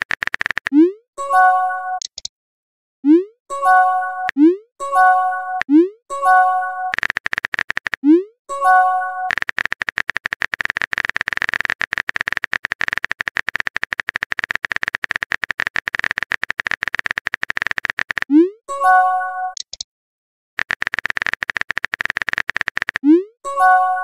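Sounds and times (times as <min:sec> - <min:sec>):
rapid keyboard typing clicks: 0:00.0 - 0:00.9, 0:06.9 - 0:08.1, 0:09.3 - 0:18.4, 0:20.6 - 0:23.1
message chime: 0:03.5 - 0:06.9, 0:08.5 - 0:09.3, 0:23.5 - 0:24.0.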